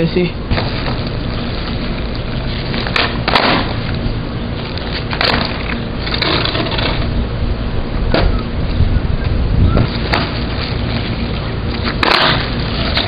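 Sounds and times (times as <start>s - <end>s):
skateboard wheels rolling on asphalt: 0.4s - 13.0s
skateboard clacking on ground: 2.6s - 4.0s, 4.8s - 7.1s, 10.0s - 10.4s, 11.8s - 13.0s.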